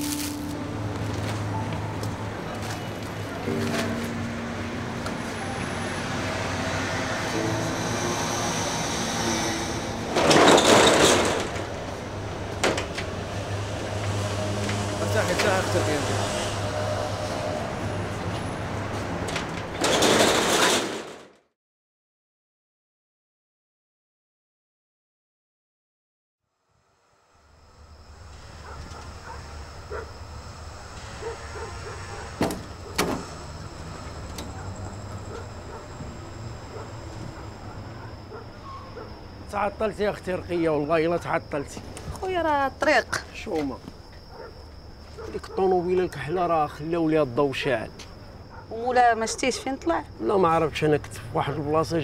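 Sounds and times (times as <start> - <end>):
distant city traffic hum: 0.0 - 20.5, 27.4 - 52.0
metal roller shutter rattling: 10.0 - 12.0, 19.2 - 21.3.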